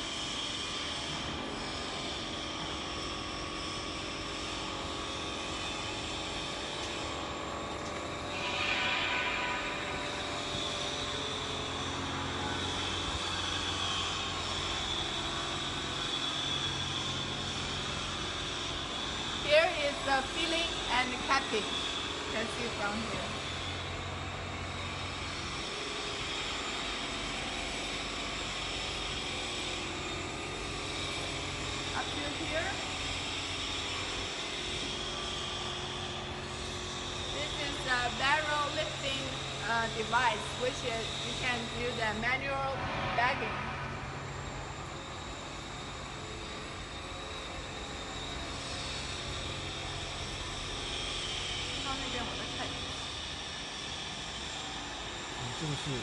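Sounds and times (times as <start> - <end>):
machine drone with constant tones: 0.0 - 56.0
machine hiss: 8.3 - 19.2.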